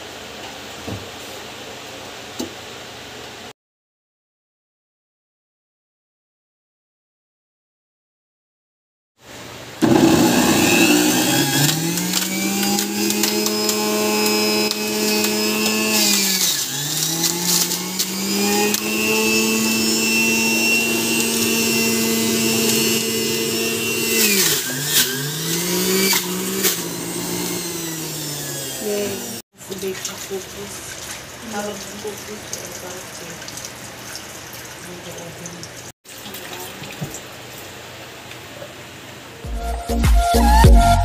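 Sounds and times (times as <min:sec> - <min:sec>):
juicer motor whining: 0:09.8 - 0:29.4.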